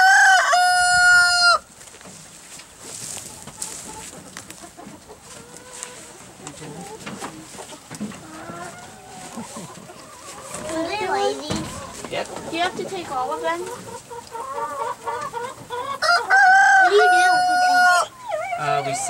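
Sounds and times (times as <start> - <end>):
rooster crowing: 0.0 - 1.7, 16.0 - 19.0
rustling: 1.7 - 13.8
quiet knocks: 7.0 - 8.6, 11.4 - 12.8.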